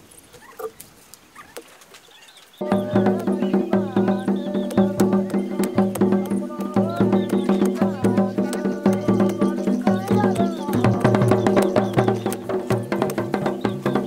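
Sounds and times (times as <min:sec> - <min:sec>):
low drone music with tapping beat: 0:02.6 - 0:14.0.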